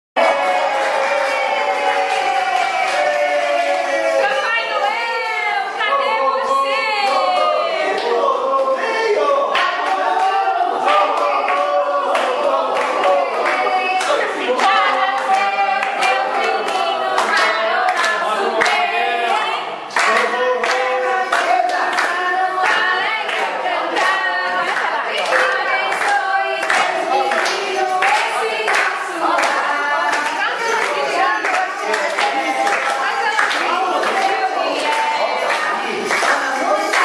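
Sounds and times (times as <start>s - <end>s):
group of adults singing: 0.2s - 37.0s
hands clapping: 9.6s - 37.0s.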